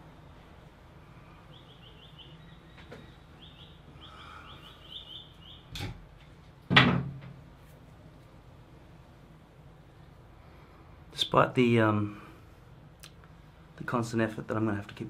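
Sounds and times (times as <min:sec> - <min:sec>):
loud knock: 0:06.7 - 0:07.4.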